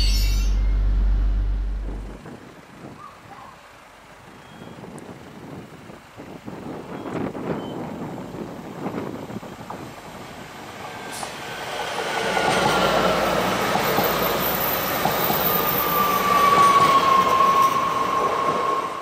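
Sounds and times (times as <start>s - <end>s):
falling whine: 0.0s - 2.3s
passenger train passing: 0.0s - 3.1s, 6.6s - 19.0s.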